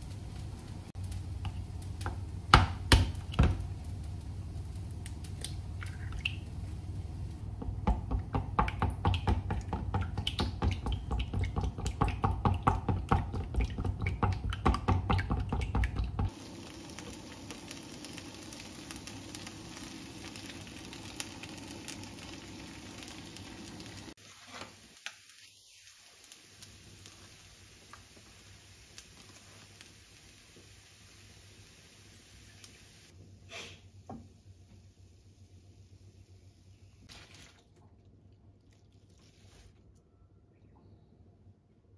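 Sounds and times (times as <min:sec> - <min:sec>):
rice sizzling in frying pan: 0:00.0 - 0:36.3
eggs beaten in bowl: 0:07.5 - 0:16.3.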